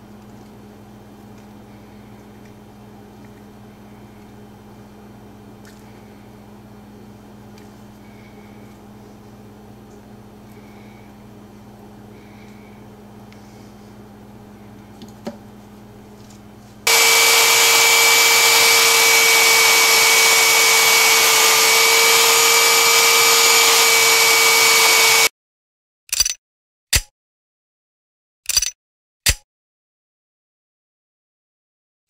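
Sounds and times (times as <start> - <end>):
belt sander whining: 16.9 - 25.3
low hum: 16.9 - 25.3.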